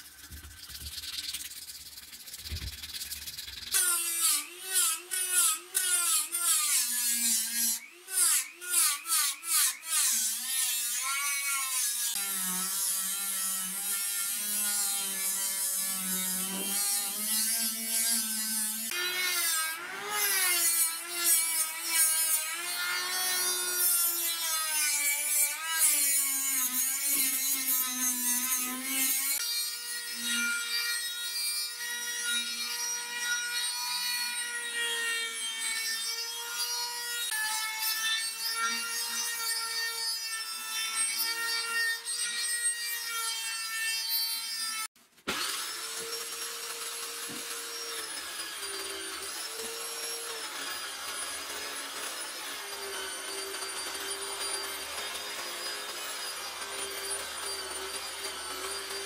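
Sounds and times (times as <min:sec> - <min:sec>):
sandpaper rubbing on steel: 0:00.0 - 0:10.6
rotary tool grinding steel: 0:00.0 - 0:59.0.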